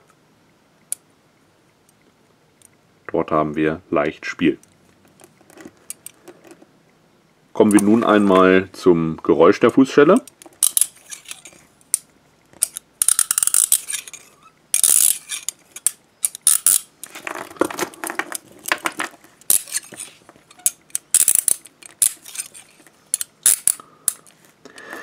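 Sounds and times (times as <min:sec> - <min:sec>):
leg irons ratcheting clicks: 0:10.2 - 0:17.3, 0:19.4 - 0:24.3.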